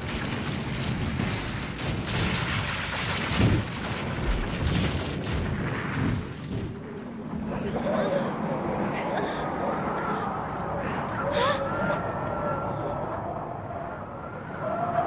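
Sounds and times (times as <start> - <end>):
heavy booms: 0.0 - 7.6
crashing concrete rubble rumble: 0.0 - 9.7.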